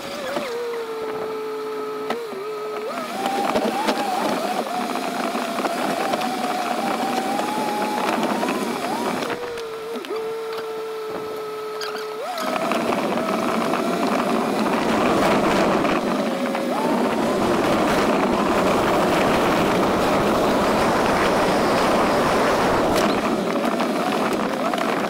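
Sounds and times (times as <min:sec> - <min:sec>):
vehicle motor running: 0:00.0 - 0:25.0
loud rough rushing noise: 0:02.9 - 0:10.1, 0:12.2 - 0:25.0.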